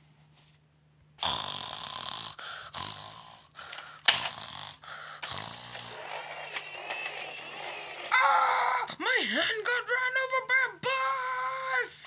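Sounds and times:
person straining breathily: 2.2 - 6.1.

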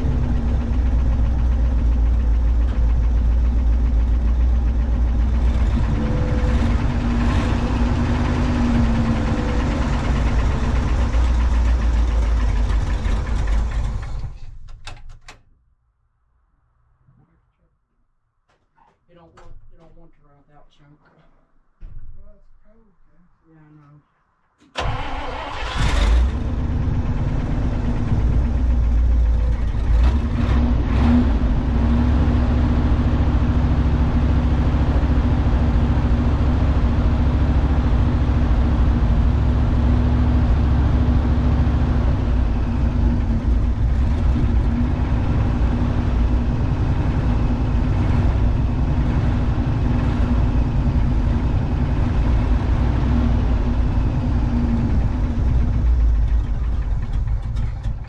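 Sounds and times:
engine idling: 0.0 - 14.6, 24.7 - 58.0
engine cranking and starting: 0.6 - 15.4, 24.6 - 30.7, 54.4 - 58.0.

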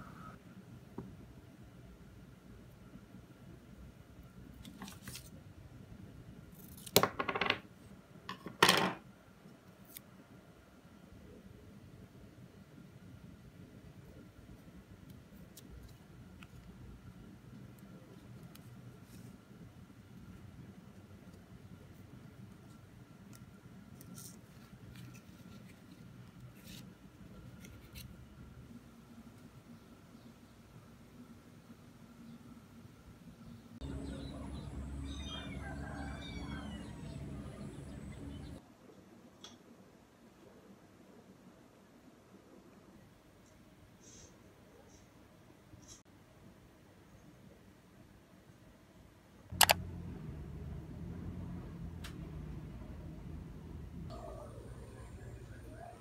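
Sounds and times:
low steady hum: 10.1 - 38.6, 49.5 - 56.0.

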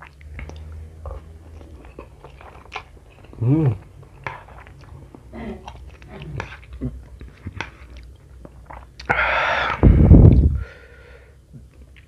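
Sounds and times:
man chewing noodles: 0.0 - 10.6
man humming mmm: 3.4 - 3.8.

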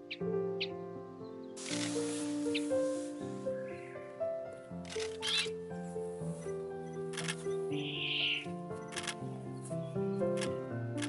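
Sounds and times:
background music with held notes: 0.0 - 11.0
burst of hissing noise: 1.6 - 3.6.

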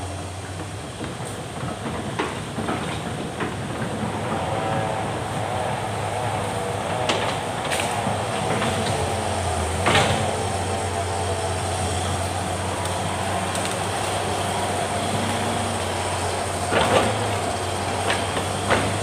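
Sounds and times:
excavator diesel engine humming: 0.0 - 19.0
hydraulic whine: 3.8 - 19.0.

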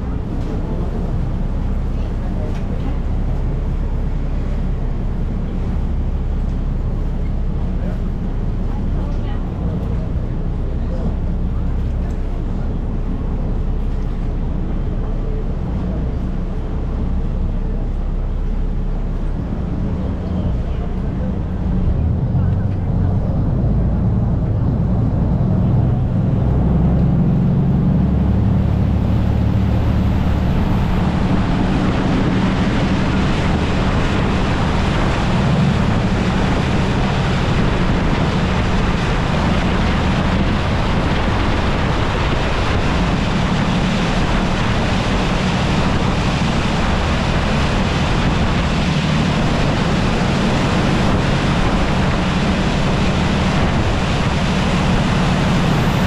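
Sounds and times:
boat diesel engine humming: 0.0 - 56.0
water rushing: 0.0 - 56.0
wind on microphone: 21.5 - 56.0.

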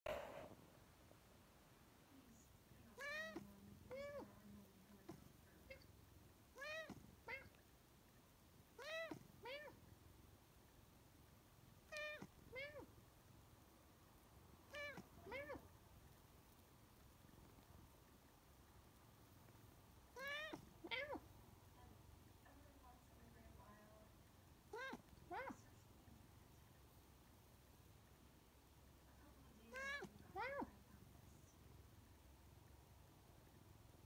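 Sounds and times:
cat meowing: 3.0 - 4.3, 6.6 - 7.6, 8.8 - 9.8, 11.9 - 12.9, 14.7 - 15.6, 20.2 - 21.2, 24.7 - 25.6, 29.7 - 30.7.

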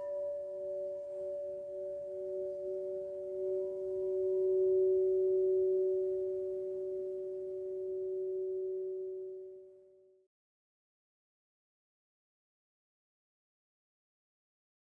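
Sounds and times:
crystal singing bowl ringing: 0.0 - 10.2.

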